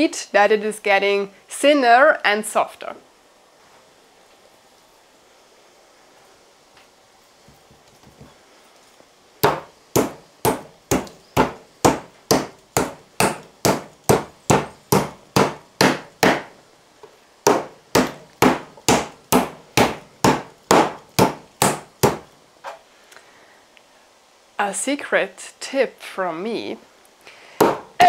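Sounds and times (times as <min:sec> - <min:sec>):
meat being pounded: 0:09.4 - 0:16.5, 0:17.5 - 0:22.3, 0:27.6 - 0:27.9.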